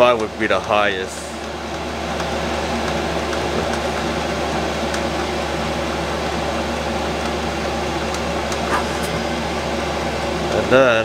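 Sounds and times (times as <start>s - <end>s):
heater blower rushing: 8.5s - 10.4s.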